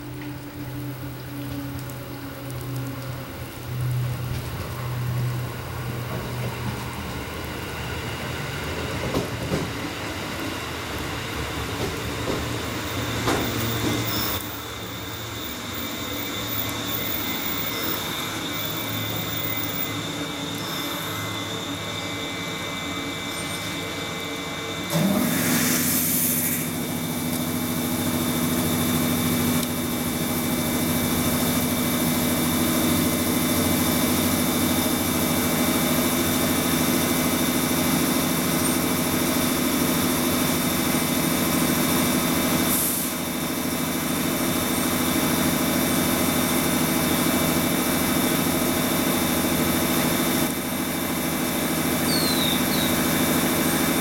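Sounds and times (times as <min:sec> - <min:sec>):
train equipment humming: 0:00.0 - 0:54.0
short air hiss: 0:24.9 - 0:26.8.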